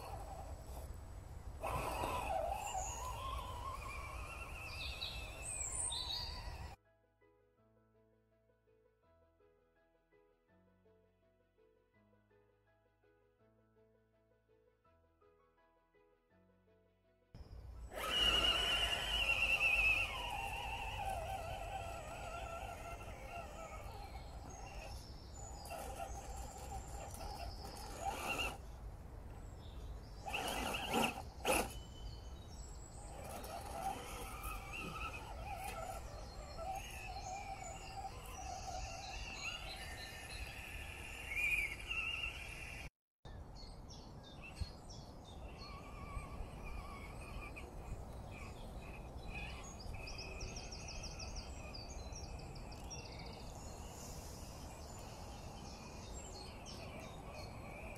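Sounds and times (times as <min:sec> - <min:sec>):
birds chirping and singing: 0:01.6 - 0:06.8, 0:17.9 - 0:57.9.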